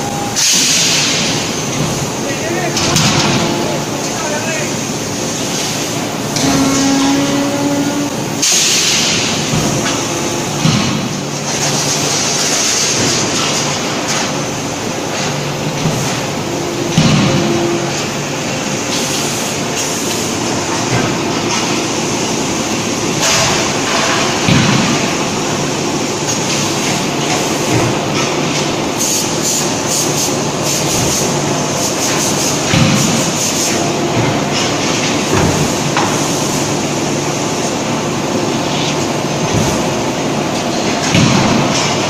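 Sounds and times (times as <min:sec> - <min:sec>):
press machinery din: 0:00.0 - 0:13.7, 0:14.6 - 0:29.0
short humming tones: 0:06.3 - 0:08.4.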